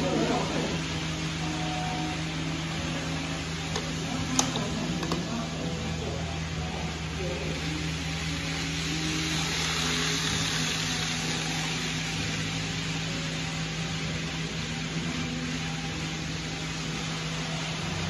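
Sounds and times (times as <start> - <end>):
steady low hum: 0.0 - 18.0
model train whirring past: 7.0 - 18.0.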